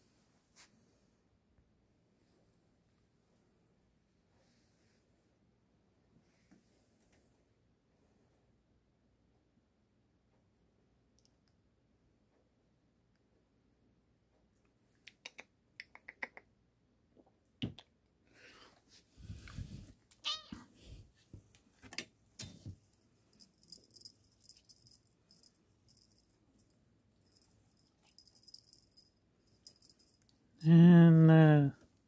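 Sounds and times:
cat meowing: 20.2s - 20.7s.

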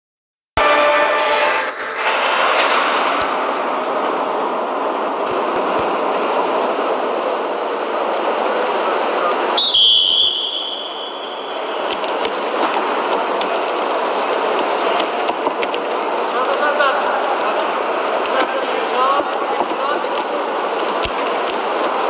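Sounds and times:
arena crowd noise: 0.6s - 22.0s
referee's whistle blast: 9.6s - 11.6s.

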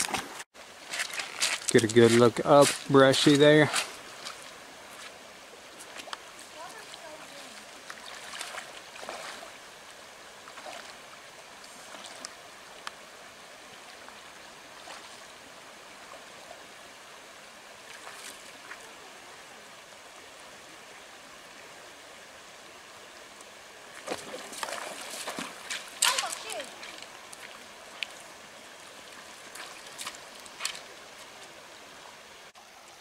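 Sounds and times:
footsteps splashing in water: 0.0s - 2.9s, 5.8s - 9.5s, 24.0s - 28.3s, 29.1s - 31.4s
creek running over rocks: 0.0s - 33.0s.

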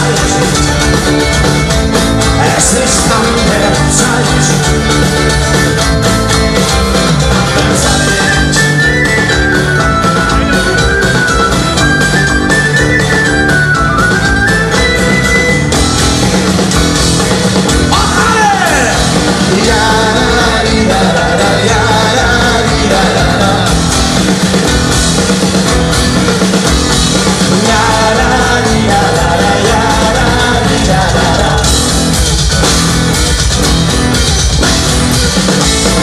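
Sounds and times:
person singing: 0.0s - 1.1s, 2.2s - 5.3s, 7.4s - 10.3s, 17.9s - 24.0s, 27.4s - 32.0s
live rock band playing: 0.0s - 36.0s.

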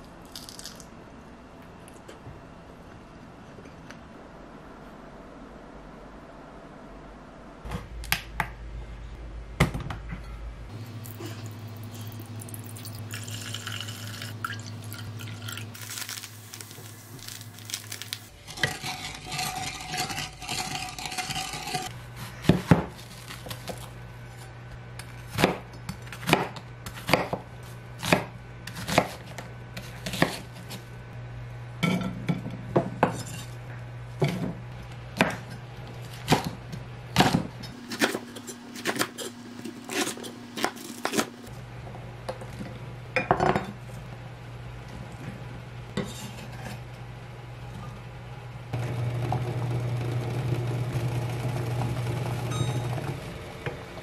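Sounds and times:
knife chopping on wooden board: 22.2s - 23.0s, 25.3s - 27.4s.

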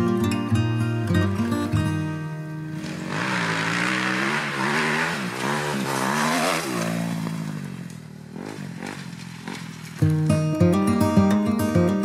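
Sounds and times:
dirt bike engine revving: 2.6s - 10.5s.

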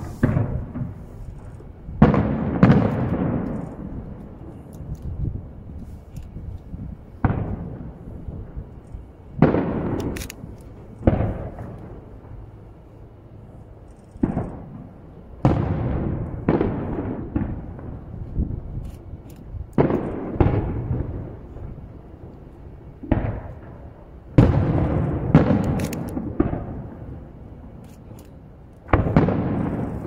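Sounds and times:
distant firework booms: 0.0s - 4.2s, 7.2s - 8.6s, 9.4s - 12.4s, 14.2s - 18.8s, 19.8s - 21.8s, 23.0s - 27.3s, 28.9s - 30.0s.

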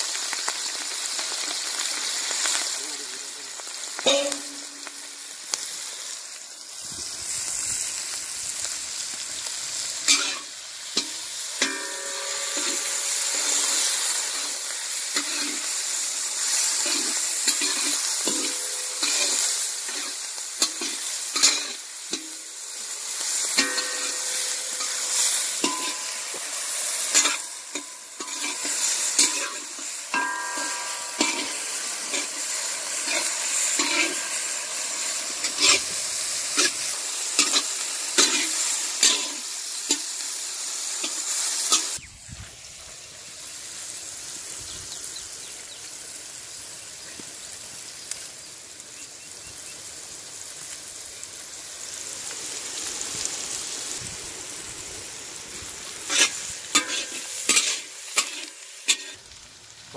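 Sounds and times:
cabbage sizzling in hot oil: 0.0s - 59.9s
metallic ringing: 4.1s - 4.8s, 11.0s - 14.4s, 23.6s - 35.8s
metal spatula scraping pan: 10.1s - 14.6s, 15.2s - 15.7s, 16.7s - 22.3s, 23.5s - 36.0s, 56.1s - 59.2s.

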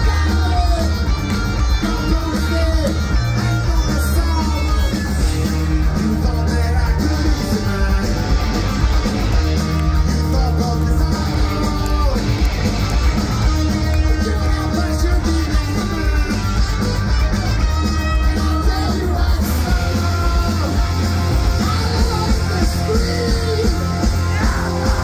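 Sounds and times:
lead vocal singing: 0.0s - 1.1s, 3.6s - 8.8s, 10.1s - 12.7s, 13.8s - 17.0s, 18.0s - 25.0s
live rock band: 0.0s - 25.0s.

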